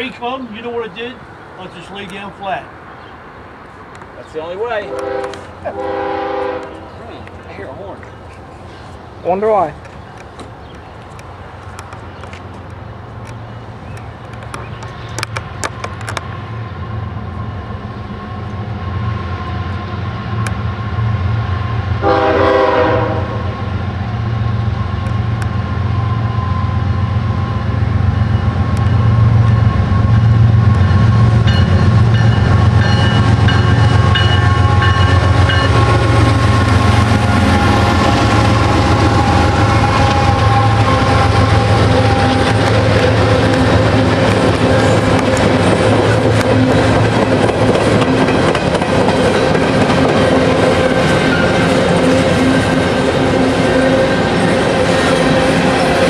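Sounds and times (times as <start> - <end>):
locomotive engine rumble: 3.7 - 56.0
train horn blast: 4.8 - 7.0, 22.0 - 23.8, 31.6 - 46.9.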